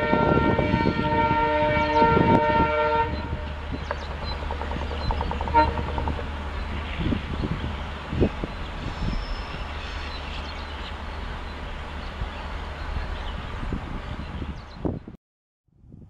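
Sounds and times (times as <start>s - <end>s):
locomotive horn: 0.0s - 3.7s, 5.4s - 7.2s
diesel locomotive engine rumble: 0.0s - 15.2s
heavy knocks: 3.8s - 6.8s.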